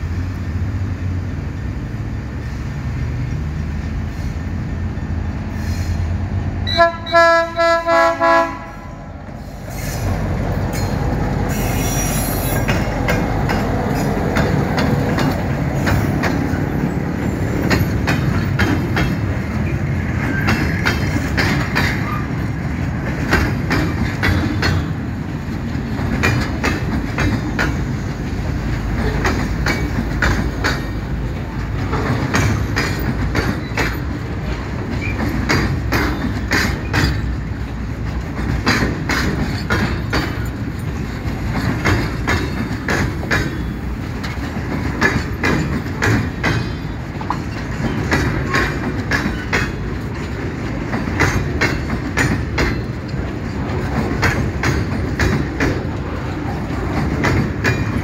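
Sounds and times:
train rumbling past: 0:00.0 - 0:58.0
locomotive horn toots: 0:06.6 - 0:09.1
wheels clicking over rail joints: 0:09.8 - 0:58.0
wheel squeal: 0:11.5 - 0:12.7.

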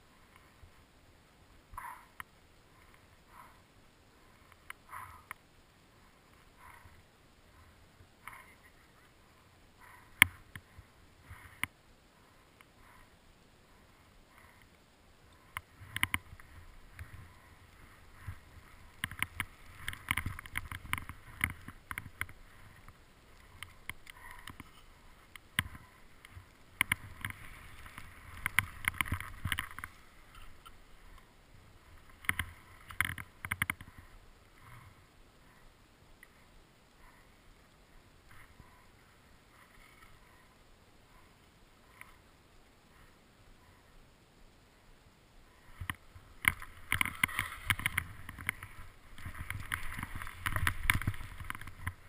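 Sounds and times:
ski clicks and knocks: 0:15.4 - 0:31.3, 0:45.7 - 0:52.0.

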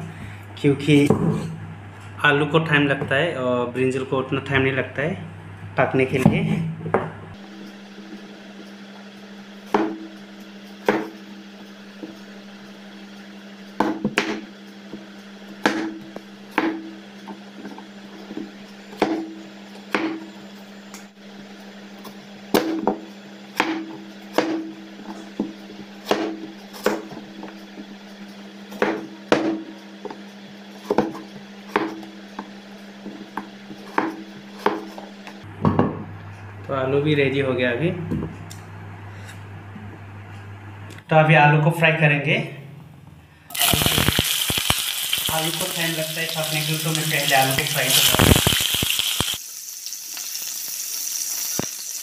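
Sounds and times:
steady low hum: 0:00.0 - 0:44.3
knife striking chopping board: 0:13.8 - 0:14.4, 0:23.6 - 0:24.7, 0:26.1 - 0:27.1.

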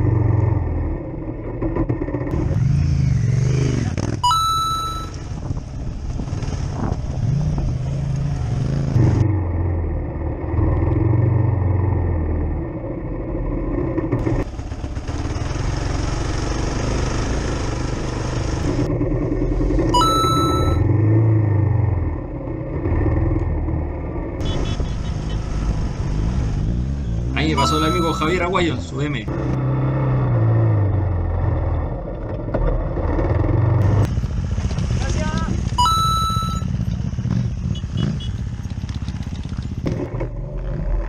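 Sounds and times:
motorcycle engine revving: 0:00.0 - 0:05.1, 0:13.8 - 0:28.6, 0:29.2 - 0:41.0
wind and terrain noise: 0:00.0 - 0:41.0.

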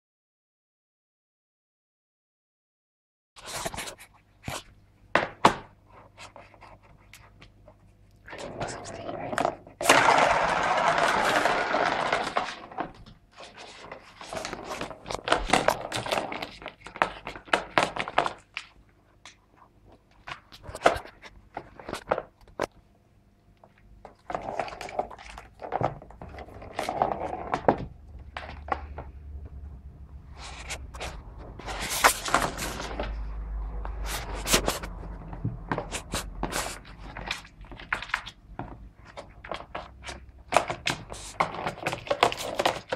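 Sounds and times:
ball rattling around plastic track: 0:08.4 - 0:18.5, 0:35.7 - 0:42.9.

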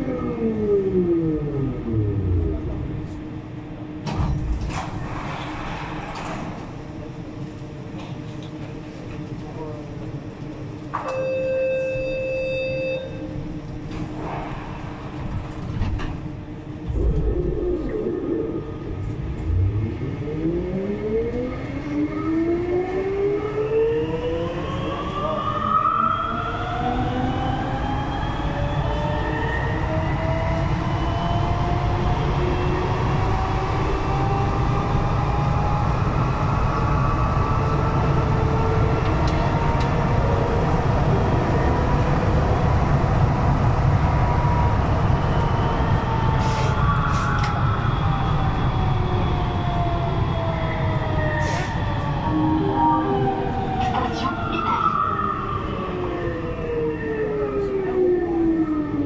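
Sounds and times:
steady electronic tone: 0:52.2 - 0:54.6.

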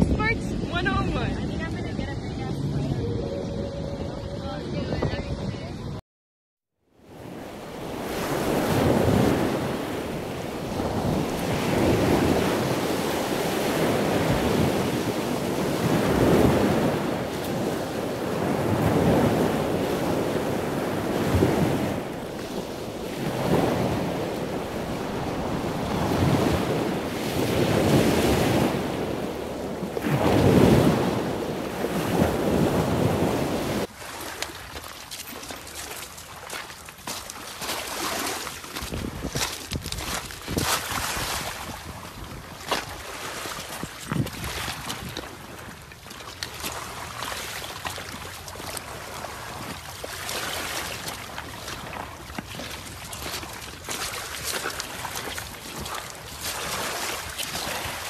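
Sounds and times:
sea surf on a beach: 0:00.0 - 0:05.9, 0:06.9 - 0:58.0
wind buffeting the microphone: 0:00.0 - 0:06.0, 0:07.2 - 0:33.9, 0:38.7 - 0:45.9.

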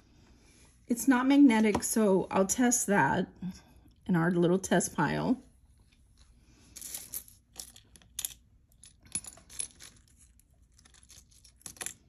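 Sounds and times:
metal jewelry clinking: 0:06.7 - 0:12.0.

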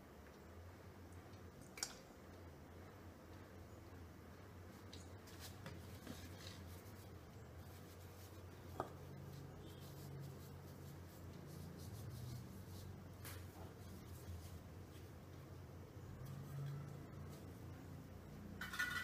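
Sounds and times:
steady low hum: 0:00.0 - 0:18.8
hand rubbing oil on dough: 0:04.6 - 0:18.5.

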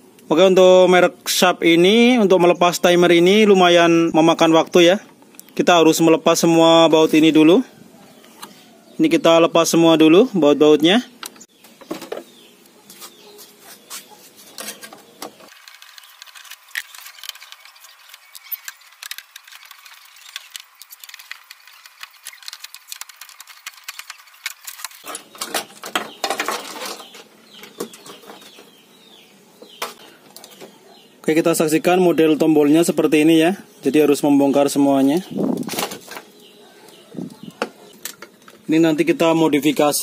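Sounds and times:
plastic panel parts rattling: 0:14.5 - 0:28.6.

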